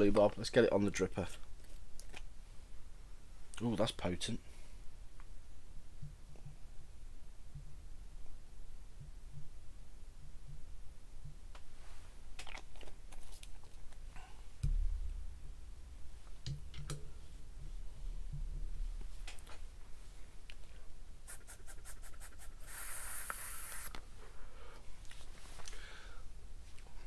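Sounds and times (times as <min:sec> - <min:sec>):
hissing draw through atomizer: 0:21.3 - 0:24.0.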